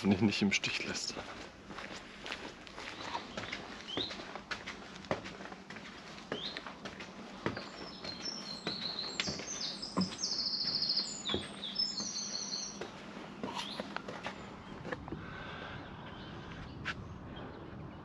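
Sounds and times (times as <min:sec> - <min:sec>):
footsteps on wooden stairs: 0:01.2 - 0:15.3
songbird chirping and trilling: 0:02.8 - 0:04.3, 0:06.0 - 0:14.9.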